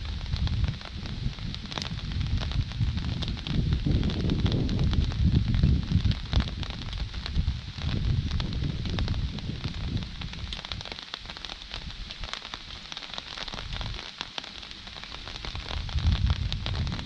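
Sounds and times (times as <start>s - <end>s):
low thunder rumble: 0.0s - 10.8s, 15.5s - 17.0s
heavy rain falling: 0.0s - 17.0s.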